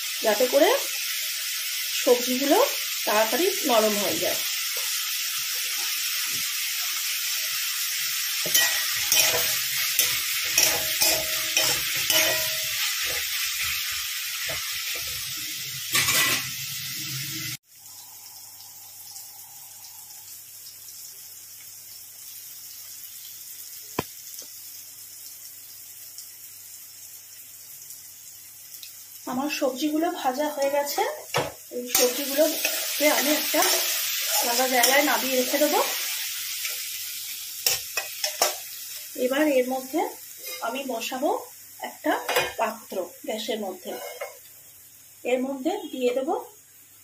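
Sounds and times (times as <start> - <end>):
vegetables sizzling in oil: 0.0 - 47.0
spatula scraping metal pan: 8.4 - 13.2, 40.4 - 40.8, 43.8 - 44.4.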